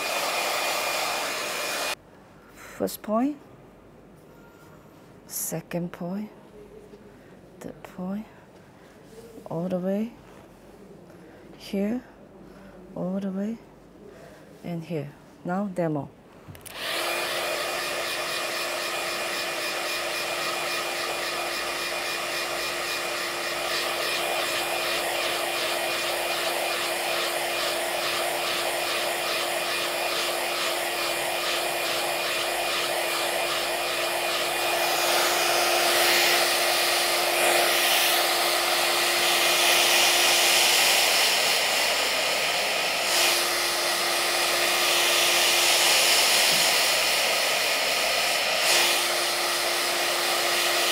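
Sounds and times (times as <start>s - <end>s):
handheld device fan whirring: 0.0s - 2.0s, 16.6s - 50.9s.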